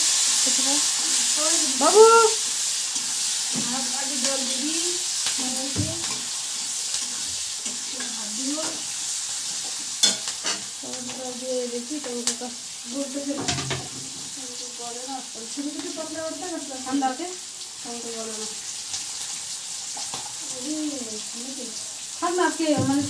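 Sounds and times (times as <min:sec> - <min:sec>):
food sizzling in oil: 0:00.0 - 0:23.0
metal spatula scraping pan: 0:09.9 - 0:10.7.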